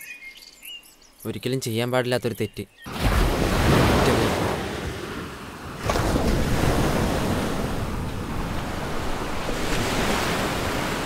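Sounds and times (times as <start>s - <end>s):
surf breaking on beach: 2.9s - 11.0s.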